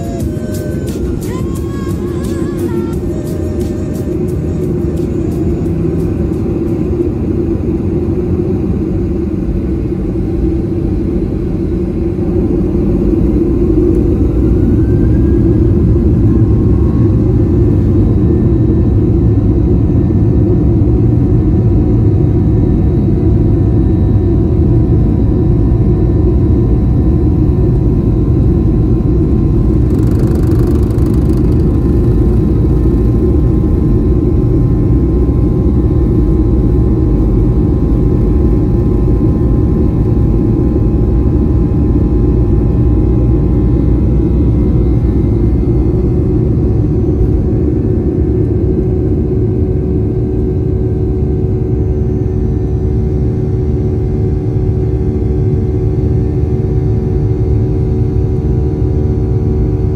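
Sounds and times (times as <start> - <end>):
jet engines spooling up: 0.0 - 20.3, 27.4 - 48.0
jet engine rumble: 0.0 - 59.9.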